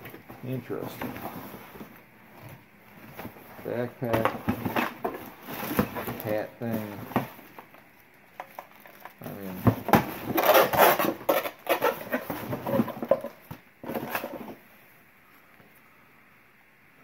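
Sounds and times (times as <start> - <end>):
rustling: 0.0 - 15.9.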